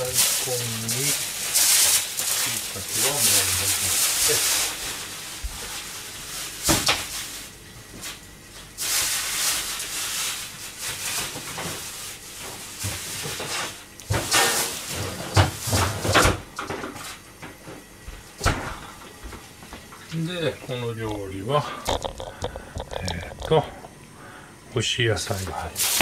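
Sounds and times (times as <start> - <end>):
kitchen knocks and clatters: 12.4 - 17.8.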